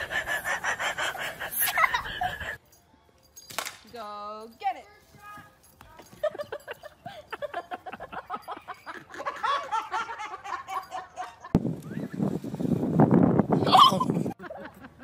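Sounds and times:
person laughing: 0:00.8 - 0:02.6, 0:13.6 - 0:15.0.

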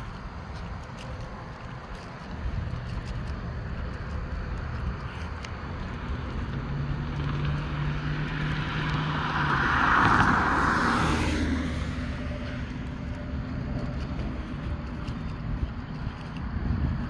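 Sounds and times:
low steady engine hum: 0:00.0 - 0:17.0
car passing by: 0:04.7 - 0:15.8.

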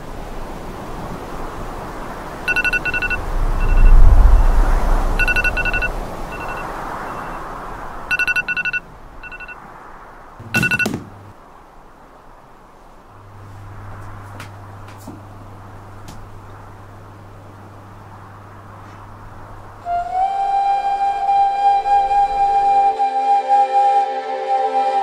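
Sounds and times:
steady rushing noise: 0:00.0 - 0:22.9
smartphone alarm beeping: 0:02.5 - 0:04.6, 0:05.2 - 0:07.4, 0:08.1 - 0:09.6, 0:10.4 - 0:11.2.

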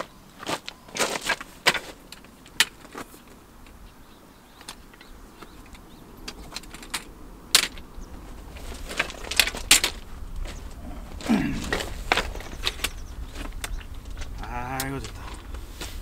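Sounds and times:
folding chair frame clicking and rattling: 0:04.6 - 0:15.9.

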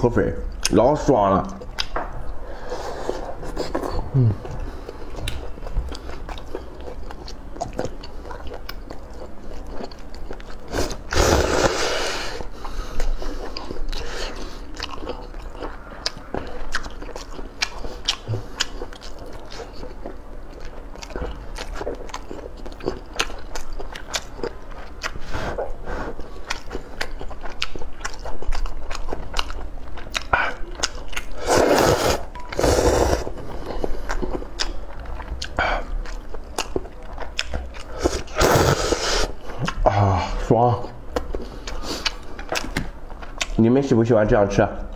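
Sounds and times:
wet chewing clicks and smacks: 0:01.4 - 0:02.3, 0:04.4 - 0:10.7, 0:13.0 - 0:25.2, 0:26.2 - 0:31.4, 0:33.6 - 0:38.3, 0:41.1 - 0:43.6.

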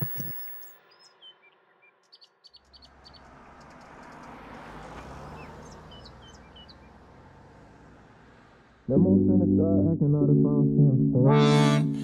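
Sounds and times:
small birds chirping: 0:00.0 - 0:04.4.

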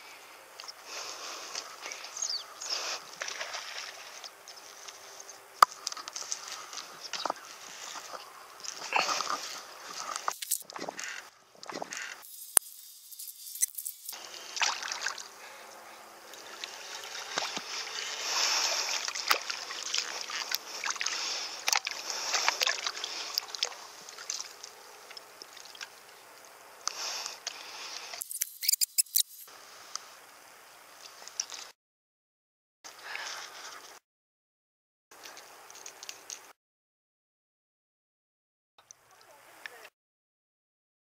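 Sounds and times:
sharp clicks and pops: 0:10.2 - 0:14.2, 0:28.2 - 0:29.5
fish splashing in water: 0:13.6 - 0:15.4, 0:16.4 - 0:25.9.

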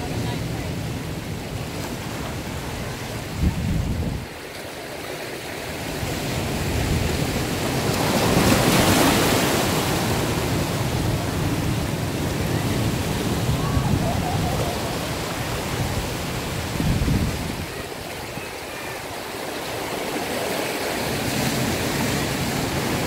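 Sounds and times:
ocean surf breaking on rocks: 0:00.0 - 0:23.0.

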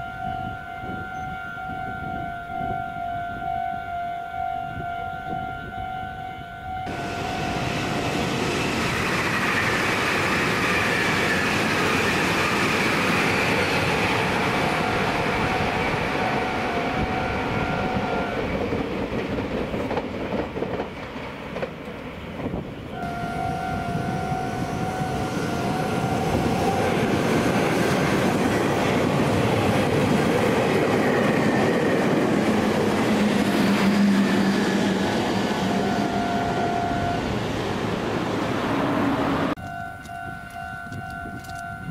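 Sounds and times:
level-crossing warning bell: 0:00.0 - 0:09.4, 0:10.8 - 0:18.8, 0:22.9 - 0:28.4, 0:33.4 - 0:37.4, 0:39.6 - 0:41.9.

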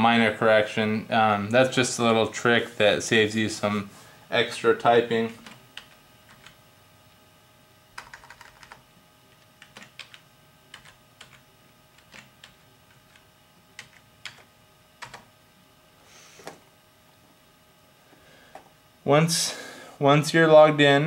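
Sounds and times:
faint keyboard typing: 0:05.3 - 0:06.6, 0:07.9 - 0:15.3.

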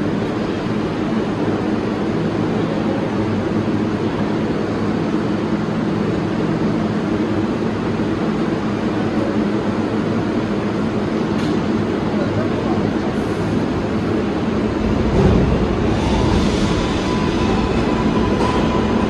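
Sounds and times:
train equipment humming: 0:07.0 - 0:19.0.

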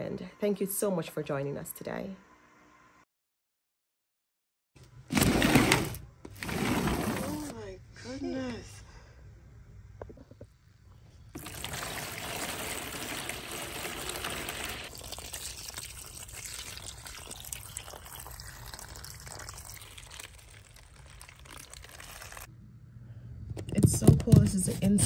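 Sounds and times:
water pouring into plastic trays: 0:11.4 - 0:22.5.

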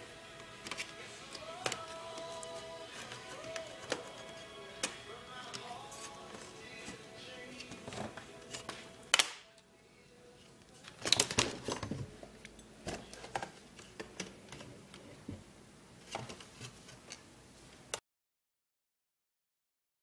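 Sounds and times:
laptop plastic snap: 0:09.1 - 0:09.4.

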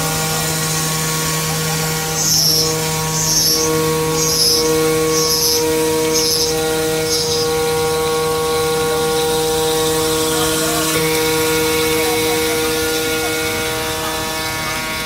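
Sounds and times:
coolant water spraying: 0:00.0 - 0:14.9
spindle whining: 0:00.0 - 0:15.0.

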